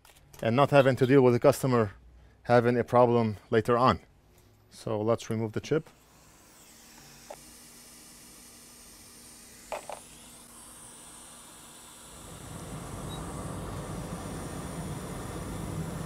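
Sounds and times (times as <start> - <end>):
hot air station hissing: 5.9 - 16.0.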